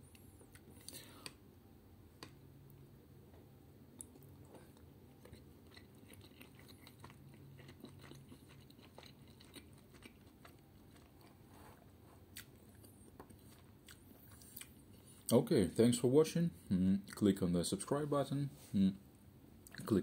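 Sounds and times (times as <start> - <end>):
faint chewing: 4.0 - 15.4, 19.6 - 20.0.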